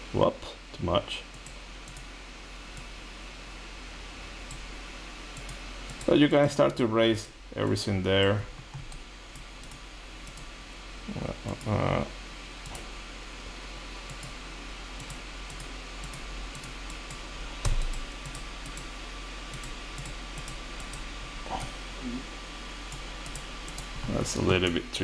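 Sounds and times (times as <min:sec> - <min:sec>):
steady fan hiss: 0:00.0 - 0:25.0
computer mouse clicks: 0:01.3 - 0:02.1, 0:05.3 - 0:06.8, 0:08.6 - 0:10.5, 0:12.6 - 0:12.9, 0:14.1 - 0:14.4, 0:15.0 - 0:18.9, 0:19.5 - 0:21.1, 0:22.9 - 0:24.1.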